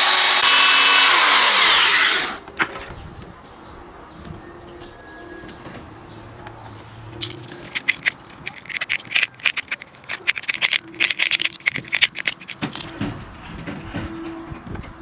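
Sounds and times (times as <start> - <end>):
knife blade scraping plastic: 7.2 - 13.0.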